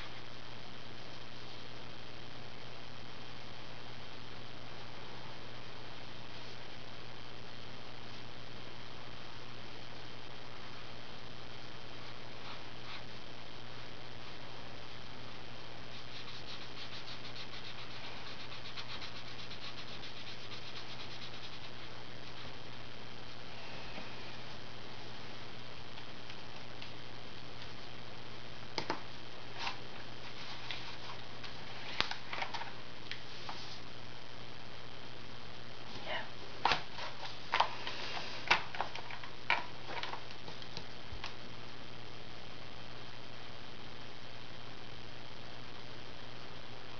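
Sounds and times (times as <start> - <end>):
marker rubbing on paper: 15.9 - 22.5.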